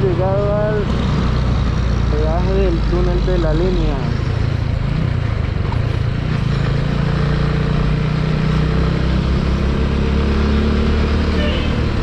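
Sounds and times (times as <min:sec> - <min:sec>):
motorcycle engine at low revs: 0:00.0 - 0:12.0
road and wind noise: 0:00.0 - 0:12.0.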